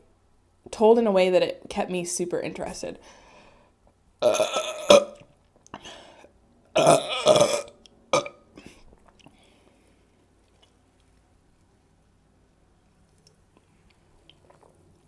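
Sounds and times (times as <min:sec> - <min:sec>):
woman burping loudly: 0:04.2 - 0:05.2, 0:06.8 - 0:08.7.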